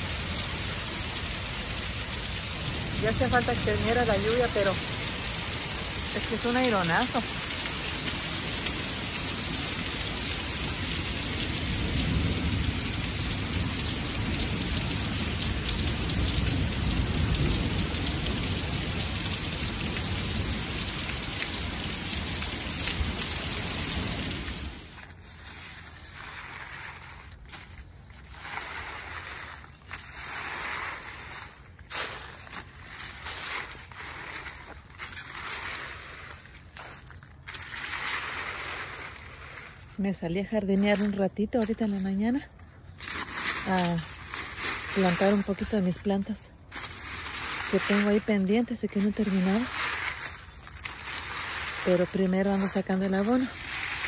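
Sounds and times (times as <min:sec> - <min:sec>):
rake scraping dry leaves: 0:00.0 - 0:01.9, 0:02.5 - 0:11.4, 0:24.0 - 0:54.0
heavy rain pouring: 0:00.0 - 0:27.2, 0:46.6 - 0:54.0.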